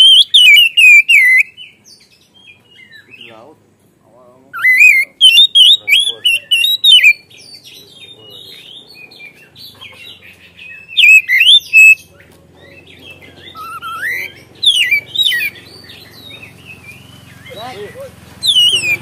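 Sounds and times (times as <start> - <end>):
bird singing whistled phrases: 0.0 - 1.8, 4.5 - 9.4, 10.6 - 19.0
bird twittering: 0.0 - 3.6, 4.4 - 19.0.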